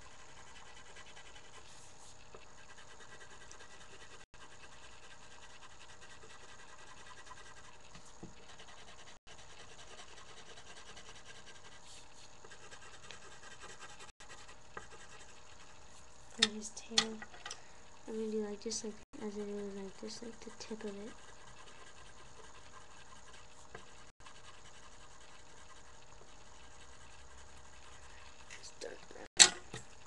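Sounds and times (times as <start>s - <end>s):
colored pencil scratching on paper: 0.0s - 17.2s, 18.0s - 29.4s.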